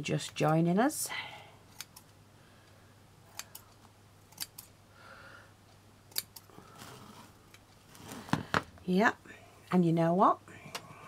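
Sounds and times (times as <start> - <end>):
scissors snipping: 1.7 - 2.1, 3.3 - 4.7, 6.1 - 6.5.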